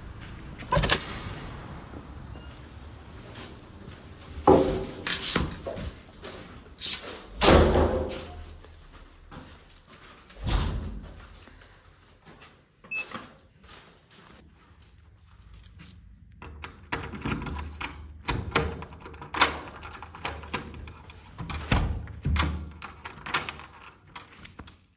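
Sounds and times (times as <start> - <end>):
door handle and lock clunking: 0.7 - 1.2
keys rattling: 4.6 - 5.8, 14.6 - 17.9, 18.8 - 21.7, 22.7 - 24.5
door thudding shut: 7.4 - 8.3.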